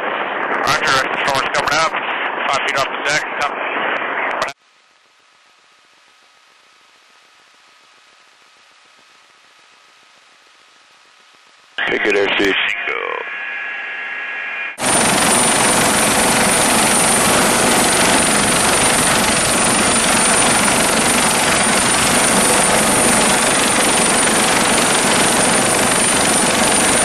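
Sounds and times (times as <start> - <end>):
helicopter running with high whine: 14.8 - 27.0.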